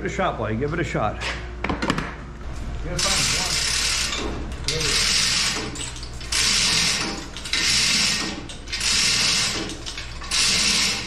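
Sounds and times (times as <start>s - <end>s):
chain hoist ratcheting and rattling: 2.9s - 11.0s.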